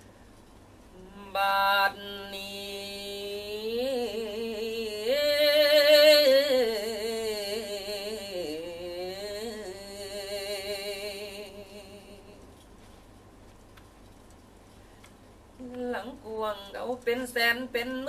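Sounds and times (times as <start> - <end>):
man singing with vibrato: 1.0 - 12.4.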